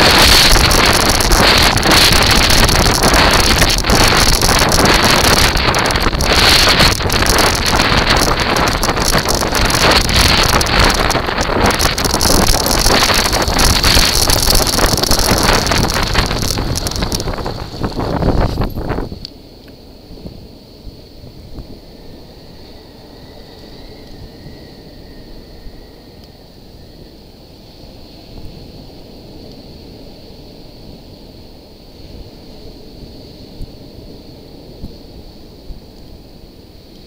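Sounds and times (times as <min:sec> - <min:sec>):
wheels rumbling over sand: 0:00.0 - 0:19.4
wind buffeting microphone: 0:00.0 - 0:31.1.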